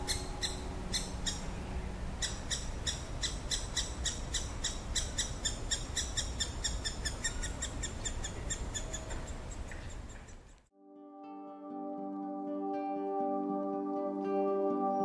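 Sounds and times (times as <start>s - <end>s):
woodpecker nestling calling: 0.0s - 1.5s, 2.2s - 10.6s.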